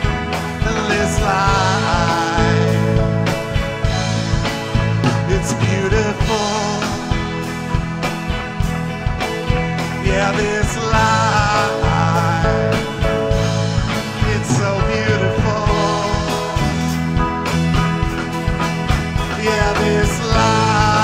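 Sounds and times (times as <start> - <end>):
lead line with bent notes: 0.0 - 21.0
live rock band playing: 0.0 - 21.0.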